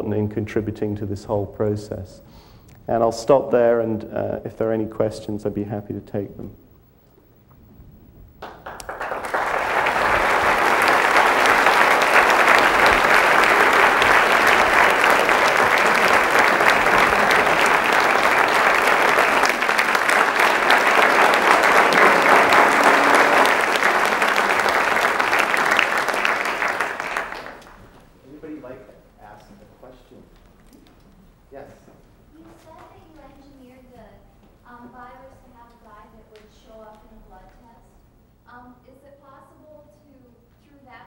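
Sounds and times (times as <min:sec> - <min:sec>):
audience applauding: 0:08.4 - 0:28.0.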